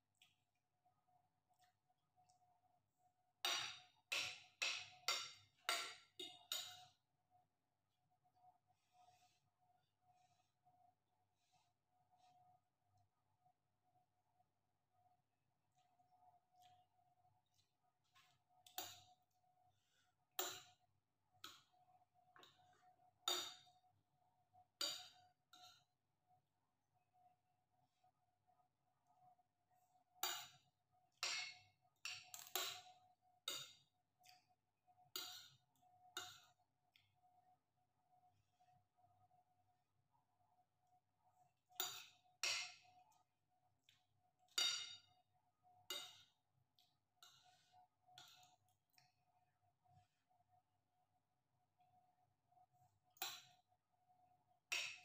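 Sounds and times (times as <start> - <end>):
cutlery clinking on ceramic plate: 44.5 - 45.1.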